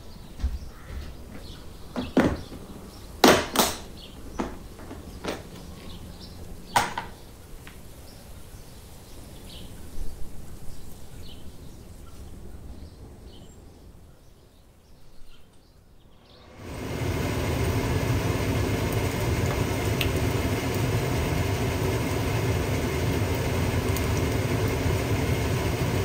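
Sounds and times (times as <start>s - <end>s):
plastic container set down: 2.0s - 2.6s.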